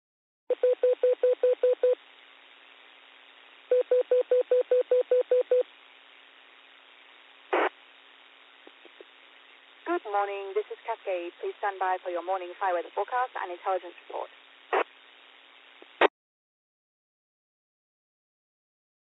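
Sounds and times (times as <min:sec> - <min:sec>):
radio receiver hiss: 0:05.5 - 0:16.1
burst of radio static: 0:07.4 - 0:07.8, 0:09.9 - 0:16.1.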